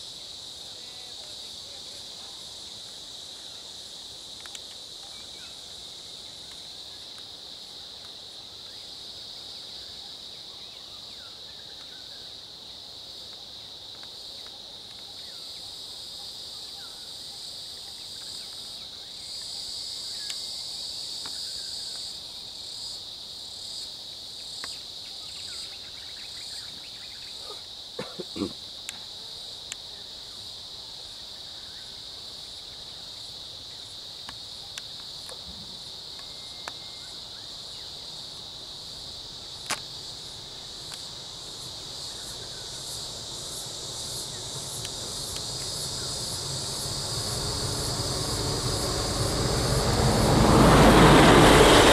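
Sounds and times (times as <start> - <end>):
high-pitched insect chorus: 0.0 - 51.9
low rumble: 44.4 - 51.9.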